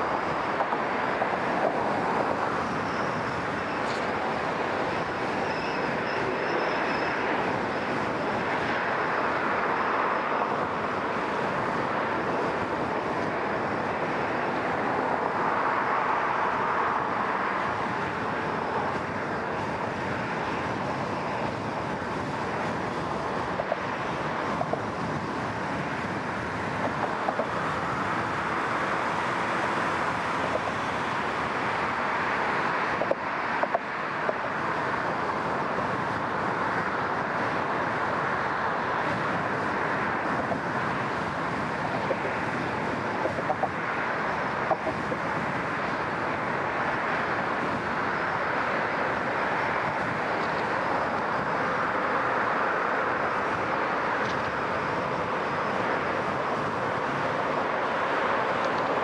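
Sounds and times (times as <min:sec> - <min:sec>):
surrounding traffic: 0:00.0 - 0:59.0
tyre and road noise: 0:00.0 - 0:59.0.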